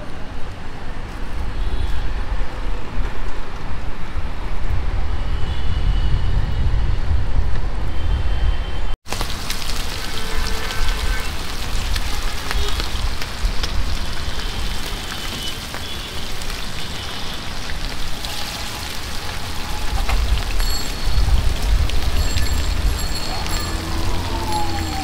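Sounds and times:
chicken deep-frying in oil: 0:09.0 - 0:25.0.

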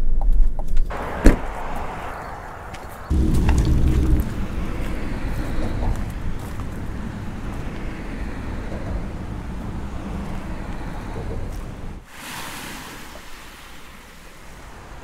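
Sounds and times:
wind buffeting microphone: 0:00.8 - 0:12.1.

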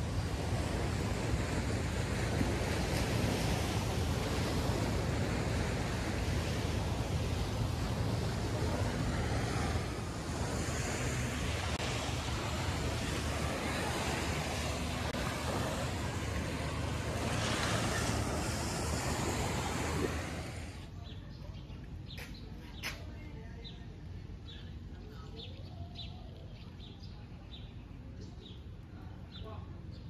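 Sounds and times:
waves washing onto beach: 0:00.0 - 0:20.9
wind buffeting microphone: 0:00.0 - 0:20.9.

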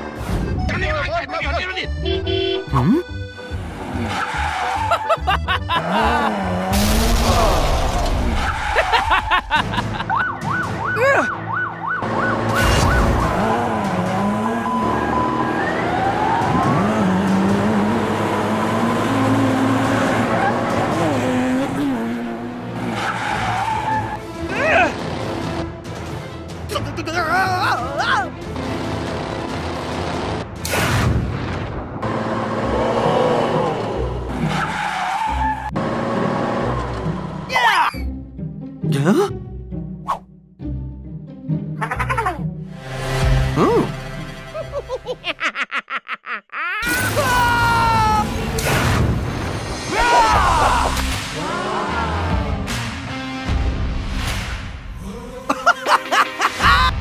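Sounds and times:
car tyre screech: 0:03.9 - 0:05.1, 0:08.3 - 0:09.2, 0:22.8 - 0:25.0, 0:34.4 - 0:35.8
wailing siren: 0:10.1 - 0:17.2
fast yelping siren: 0:14.4 - 0:16.9.

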